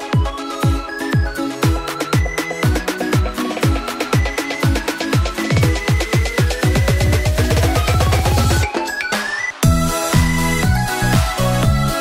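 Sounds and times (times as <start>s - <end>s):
kick drum beat: 0.0s - 8.8s
electronic dance music: 0.0s - 12.0s.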